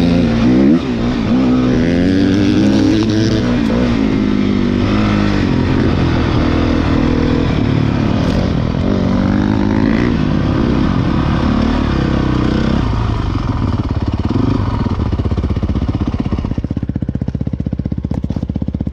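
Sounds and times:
dirt bike engines revving: 0.0s - 16.7s
engine idling with even pulsing: 12.9s - 18.9s.

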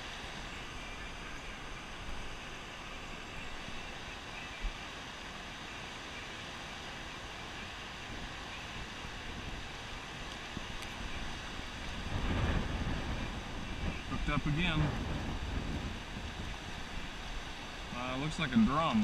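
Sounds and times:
water rushing below a dam: 0.0s - 19.0s
wind noise on microphone: 8.1s - 18.0s.

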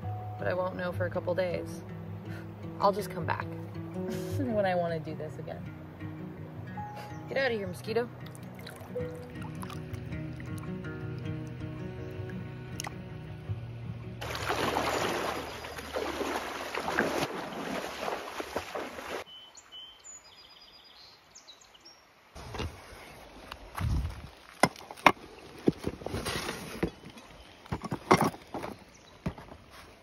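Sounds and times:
person wading through water: 8.2s - 10.8s, 14.2s - 19.3s.

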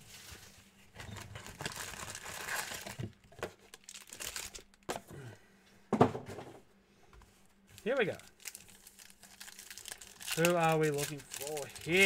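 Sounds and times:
cardboard box crinkling and rustling: 0.9s - 4.6s, 7.8s - 12.0s.

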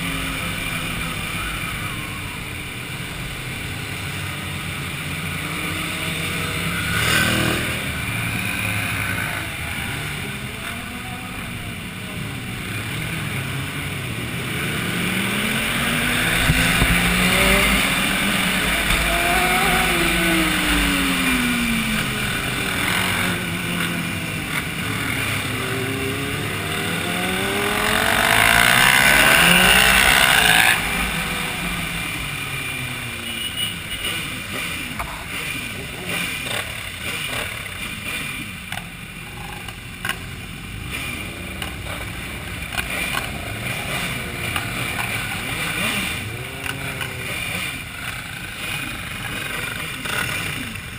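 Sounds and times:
loud rush of noise: 0.0s - 33.3s
motorcycle engines revving: 0.0s - 50.9s.

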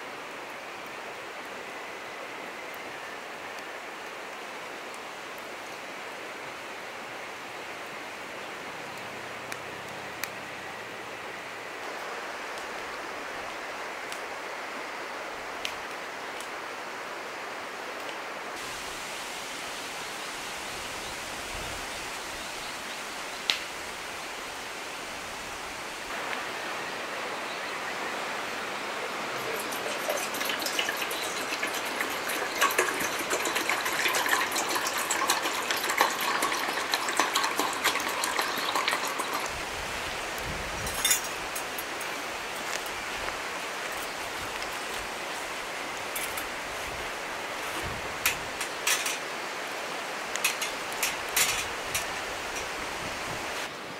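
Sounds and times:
river water flowing: 0.0s - 53.9s
crackling and splashing: 29.0s - 53.7s
water pouring into metal pot: 29.3s - 39.7s.

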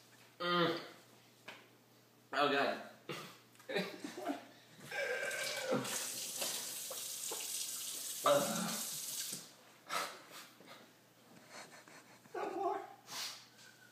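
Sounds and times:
faucet water splashing into sink: 5.3s - 9.5s.

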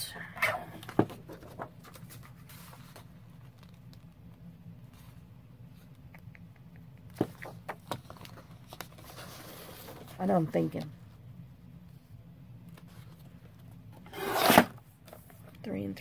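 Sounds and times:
low steady hum: 0.0s - 16.0s
paper rustling: 1.2s - 4.1s, 7.2s - 10.3s.

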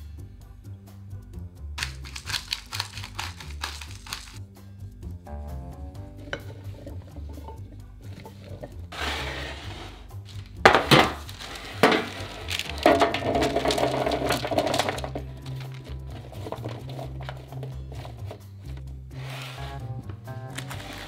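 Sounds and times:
vegetables rattling onto sheet: 1.8s - 4.4s, 10.3s - 18.4s
baking sheet knocking on counter: 10.6s - 15.2s.

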